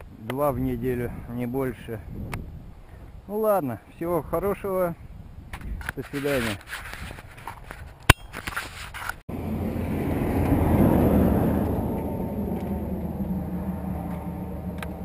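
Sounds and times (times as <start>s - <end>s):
car engine humming: 9.3s - 15.0s.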